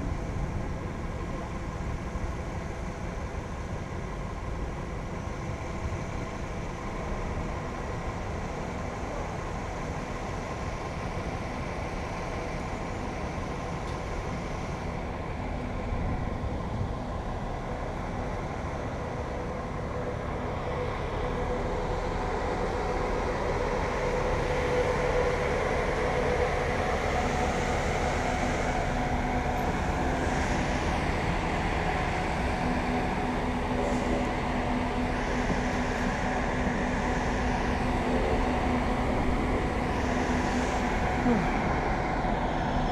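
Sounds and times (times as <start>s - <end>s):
faint steady hums: 0.0s - 42.9s.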